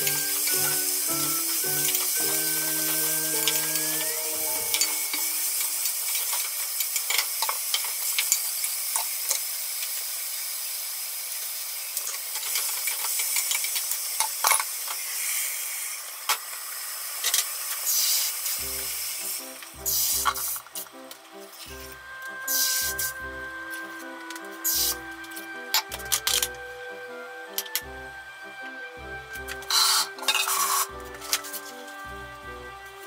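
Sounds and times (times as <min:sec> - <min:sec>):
background music: 0:00.0 - 0:06.1, 0:18.6 - 0:33.0
vegetables sizzling in a pot: 0:00.0 - 0:26.1, 0:29.7 - 0:31.9.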